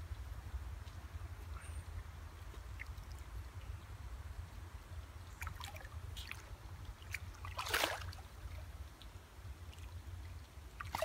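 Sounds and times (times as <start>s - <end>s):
fish splashing and thrashing in water: 5.3s - 8.7s, 10.7s - 11.0s.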